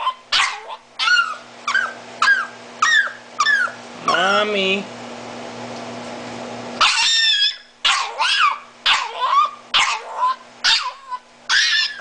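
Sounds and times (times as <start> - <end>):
dog yowling screams: 0.0 - 4.4, 6.8 - 12.0.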